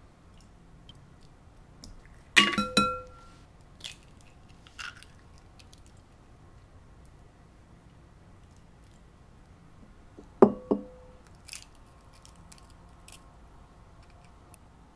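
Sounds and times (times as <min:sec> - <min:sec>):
egg knocking on glass bowl: 0:02.4 - 0:03.2, 0:10.4 - 0:11.0.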